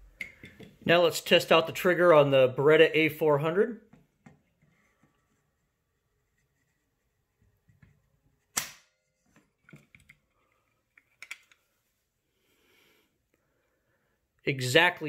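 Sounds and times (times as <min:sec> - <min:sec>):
shotgun hammer snap: 0:08.6 - 0:08.9.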